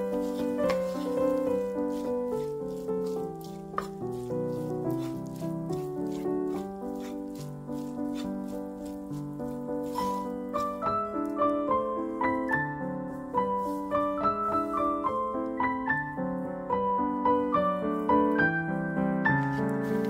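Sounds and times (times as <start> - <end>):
light piano music: 0.0 - 20.0.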